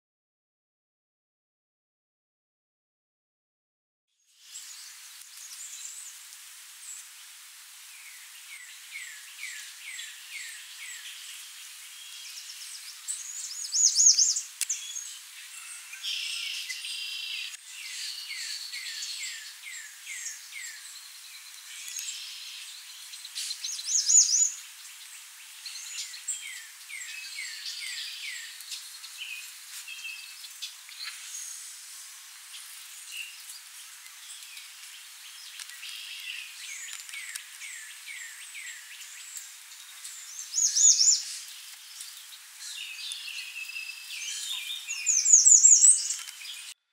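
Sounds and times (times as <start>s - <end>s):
songbirds whistling: 8.0s - 31.6s, 35.3s - 46.8s.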